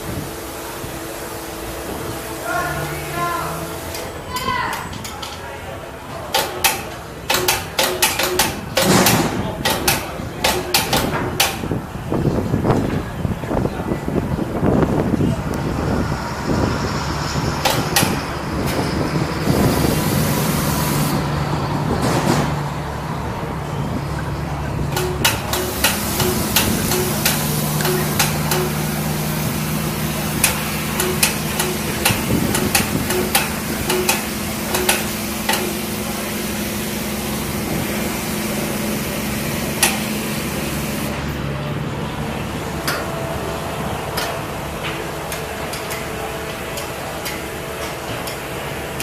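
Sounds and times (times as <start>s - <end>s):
steady machine hum: 0.0s - 49.0s
metal clanks and knocks: 6.1s - 11.8s, 24.9s - 29.0s, 30.4s - 35.9s.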